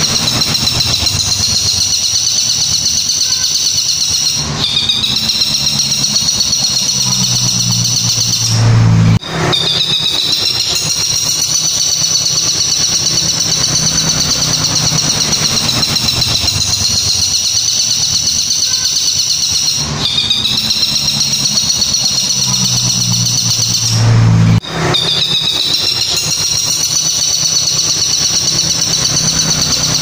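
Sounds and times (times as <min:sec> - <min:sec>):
bird warbling trill: 0:00.0 - 0:30.0
steady low hum: 0:04.4 - 0:09.6, 0:19.8 - 0:25.0
loud rush of noise: 0:06.7 - 0:11.5, 0:22.4 - 0:26.0.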